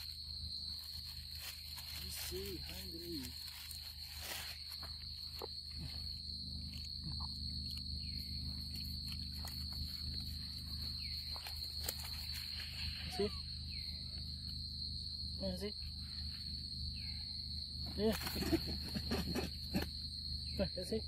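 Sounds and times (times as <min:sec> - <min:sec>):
night insects chorus: 0:00.0 - 0:21.0
low steady hum: 0:00.1 - 0:20.8.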